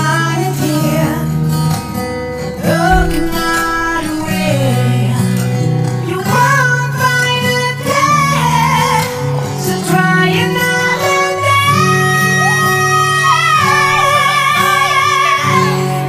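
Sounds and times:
acoustic guitar: 0.0 - 6.9.

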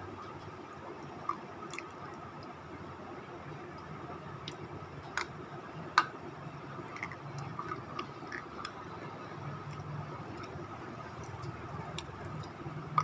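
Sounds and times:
person chewing crunchy food: 6.9 - 9.0, 9.6 - 13.0.

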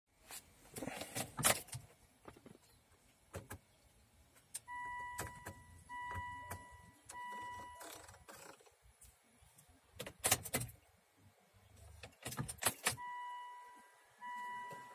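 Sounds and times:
long electronic beeps: 4.7 - 8.0, 13.0 - 14.9.

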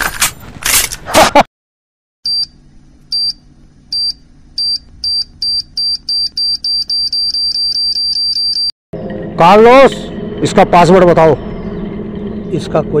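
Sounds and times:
electronic timer beeping: 2.3 - 8.7.

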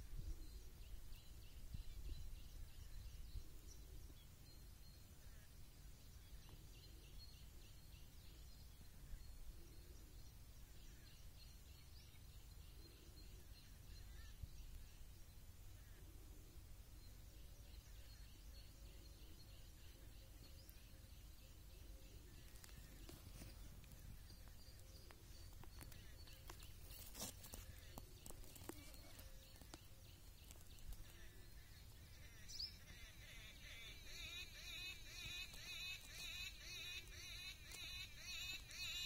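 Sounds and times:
faint high chirping: 6.1 - 39.0.

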